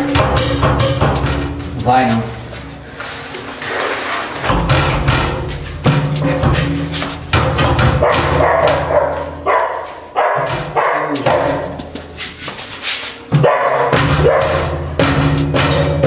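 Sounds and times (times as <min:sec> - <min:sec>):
foot kicking sheet-metal door: 0:00.0 - 0:02.5, 0:04.4 - 0:16.0
dog barking: 0:08.0 - 0:12.0, 0:13.3 - 0:14.8.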